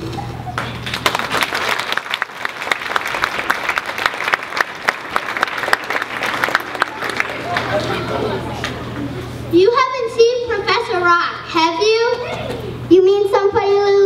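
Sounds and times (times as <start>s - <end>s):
audience applauding: 0.6s - 8.9s.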